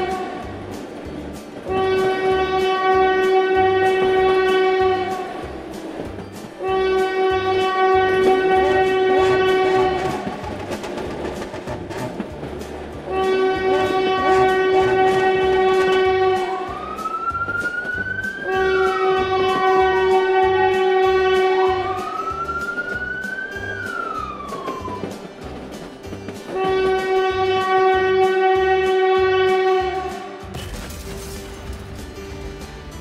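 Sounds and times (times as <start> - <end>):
toy train chugging beat: 0.0 - 28.4
toy train horn tone: 1.6 - 5.4, 6.6 - 10.3, 13.0 - 16.8, 18.4 - 22.3, 26.5 - 30.4
rising and falling whistle sweeps: 16.6 - 19.2, 21.8 - 25.0.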